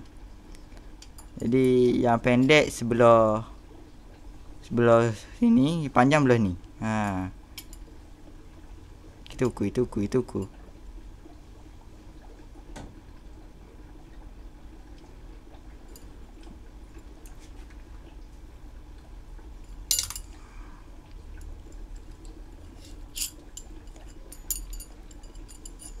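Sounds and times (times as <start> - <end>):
low steady hum: 0.0 - 26.0
metal studs clinking together: 19.9 - 20.3, 23.2 - 23.4.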